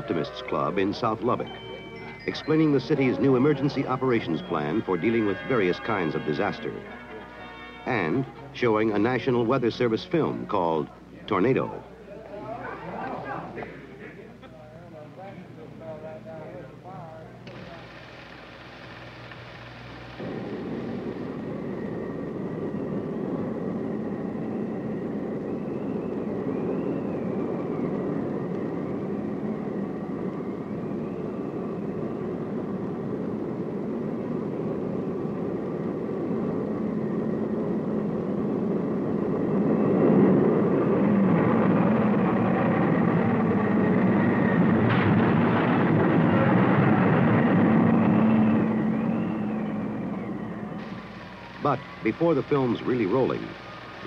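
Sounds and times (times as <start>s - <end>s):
faint wavering whistle: 0.0s - 8.5s, 20.3s - 32.6s, 48.0s - 54.0s
rushing wind rumble: 19.0s - 54.0s.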